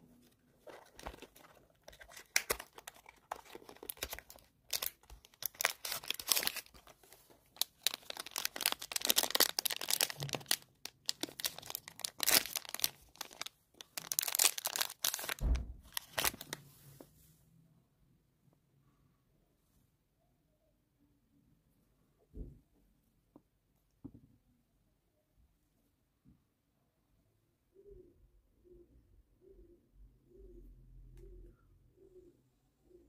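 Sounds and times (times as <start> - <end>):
foil wrapper crinkling and tearing: 0.7 - 16.6.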